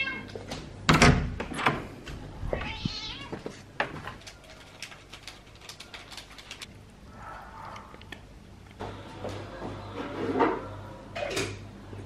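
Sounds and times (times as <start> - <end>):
cat meowing: 0.0 - 0.3, 2.5 - 3.4.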